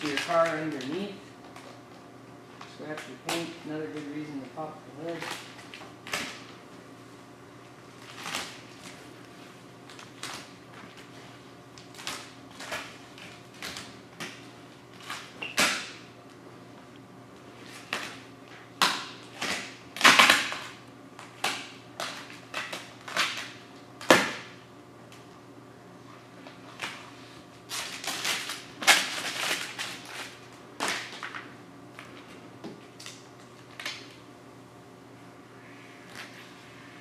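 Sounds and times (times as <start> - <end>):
plastic film crinkling: 0.0 - 1.7, 27.7 - 31.4.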